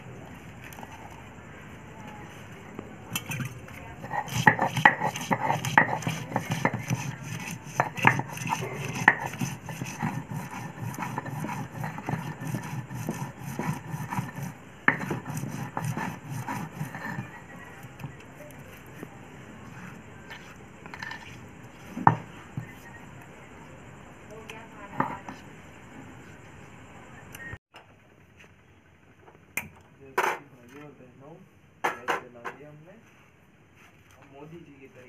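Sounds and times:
stone grinding on stone: 3.3s - 18.1s, 18.8s - 22.6s.

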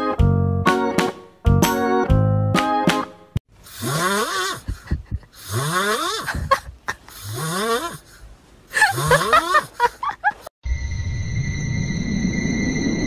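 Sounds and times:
snorting breaths: 3.6s - 9.8s.

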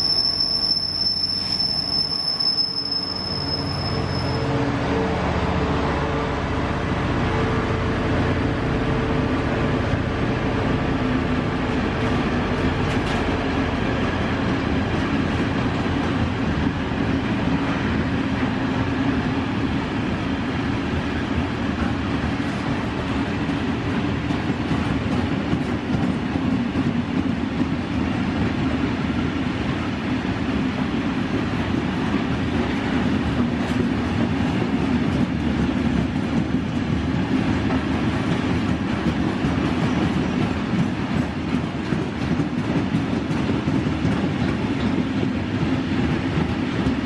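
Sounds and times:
freight train wheels clattering: 12.0s - 17.9s, 30.5s - 47.0s.

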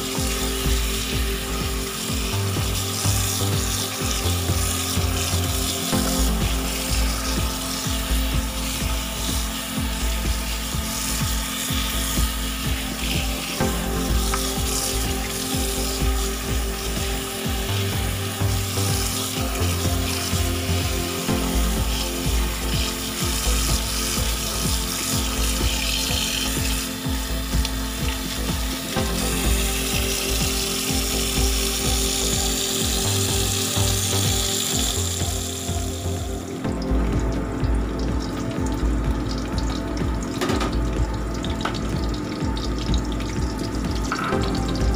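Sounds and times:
background music with beat: 0.0s - 44.9s
tap water running: 0.0s - 44.9s
tap water splashing into basin: 36.6s - 44.9s.

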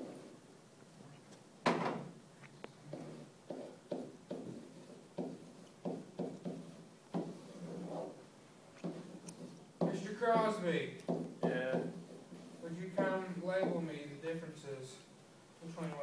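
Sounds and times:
pen knocking on whiteboard: 2.9s - 8.1s, 8.8s - 12.2s, 12.8s - 13.9s.

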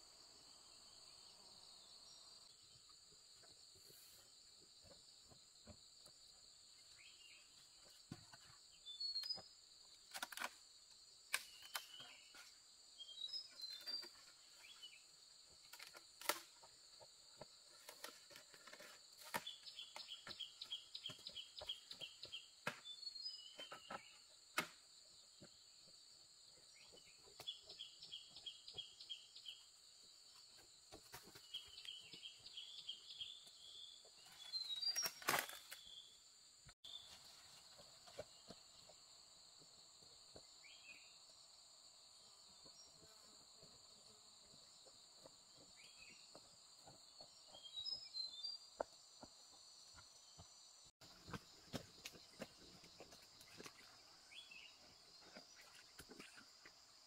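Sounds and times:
birds chirping: 19.3s - 24.4s.

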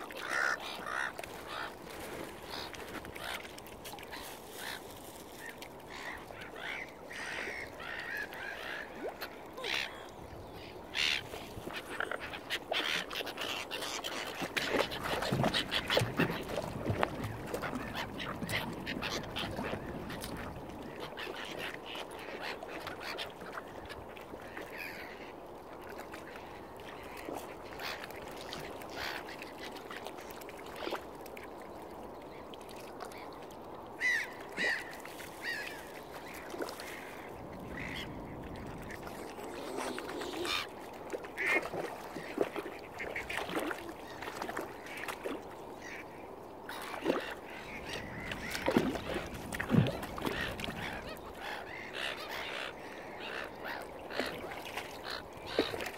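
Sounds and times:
waterfowl calling: 0.0s - 10.2s, 34.0s - 46.1s, 46.7s - 55.9s.

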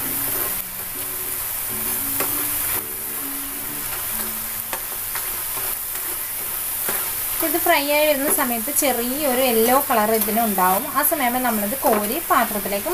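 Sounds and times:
soft background music: 0.0s - 6.0s
snacks sizzling in hot oil: 0.0s - 12.9s.

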